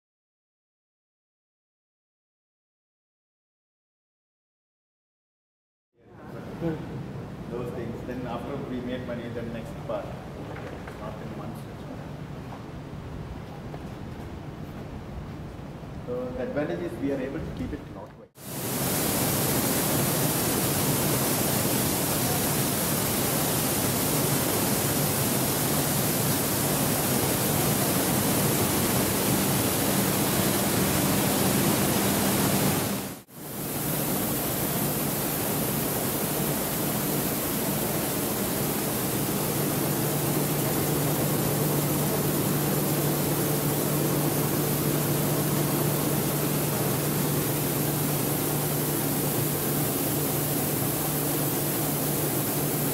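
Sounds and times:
machinery hissing: 18.4 - 52.9
low machine hum: 18.7 - 52.9.

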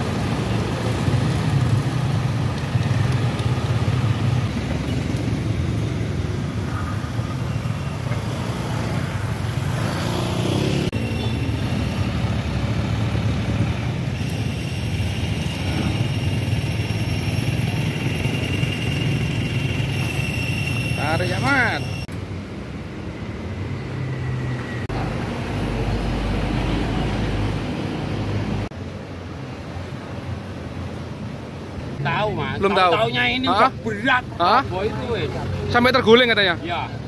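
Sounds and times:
vehicle engines humming: 0.0 - 37.0
vehicle passing: 3.8 - 11.0.

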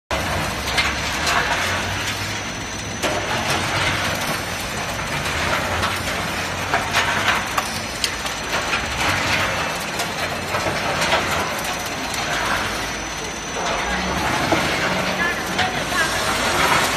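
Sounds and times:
machine mechanical din: 0.1 - 16.9.

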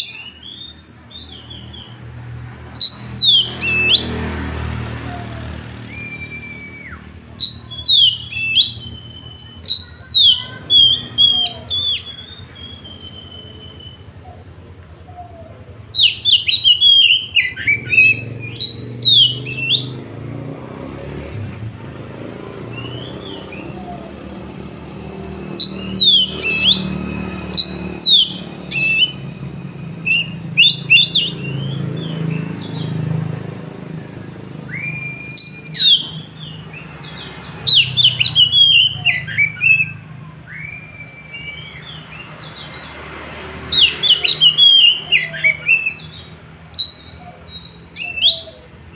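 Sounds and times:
bird singing whistled notes: 0.0 - 2.0, 2.7 - 4.2, 5.0 - 20.3, 22.6 - 33.0, 34.3 - 43.0, 43.6 - 48.9
low road traffic rumble: 0.0 - 48.9.

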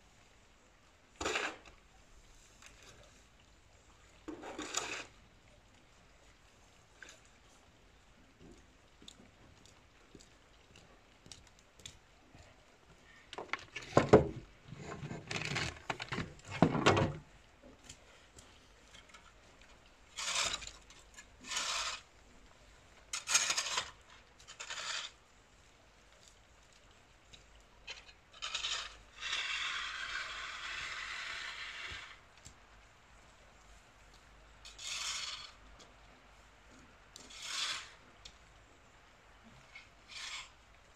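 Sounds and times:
shovel scraping on concrete: 1.2 - 1.7, 4.3 - 5.1, 20.2 - 20.8, 21.4 - 22.1, 23.2 - 25.2, 28.4 - 32.2, 34.7 - 35.6, 37.3 - 38.0, 40.1 - 40.5.

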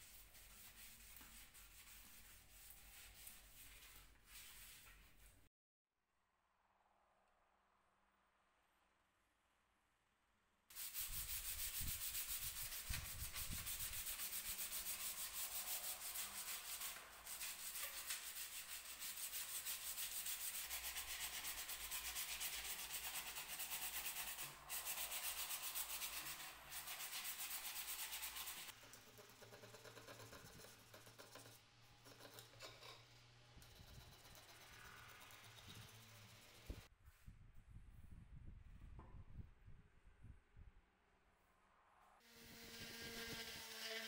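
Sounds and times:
sandpaper rubbing on wood: 0.0 - 5.3, 10.7 - 28.8.

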